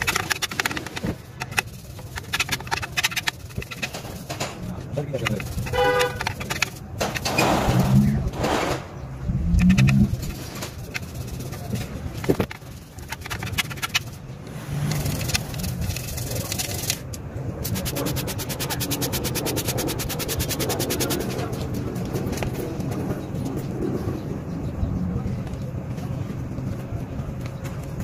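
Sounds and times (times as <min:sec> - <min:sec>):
brush scrubbing inside metal pipe: 0:00.0 - 0:04.4, 0:05.0 - 0:08.1, 0:09.6 - 0:14.2, 0:17.6 - 0:21.4.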